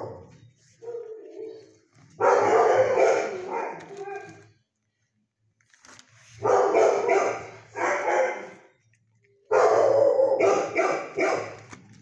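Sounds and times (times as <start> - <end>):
dog barking: 2.2 - 4.3, 6.4 - 8.7, 9.5 - 11.7.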